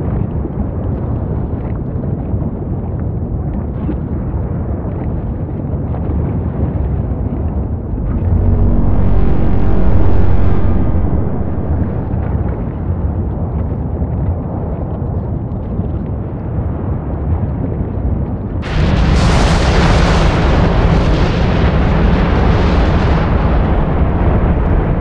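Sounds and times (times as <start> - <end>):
volcanic eruption rumble: 7.7 - 14.6, 17.8 - 25.0.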